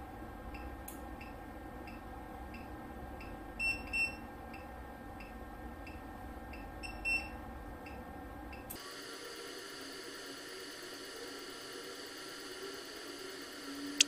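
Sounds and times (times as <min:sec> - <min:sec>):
high-pitched whine: 0:08.8 - 0:14.0.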